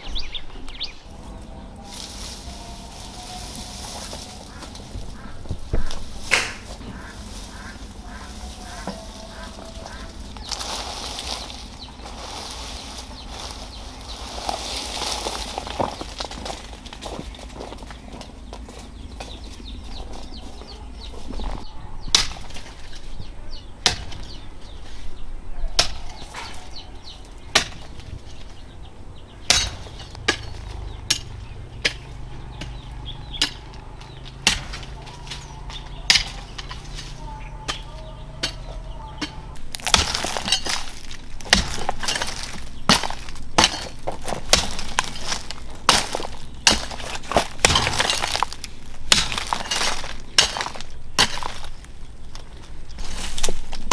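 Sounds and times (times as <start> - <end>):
earth and pebbles crunching: 0.0 - 53.9
hand hoe striking stony soil: 1.9 - 12.9, 29.5 - 52.4.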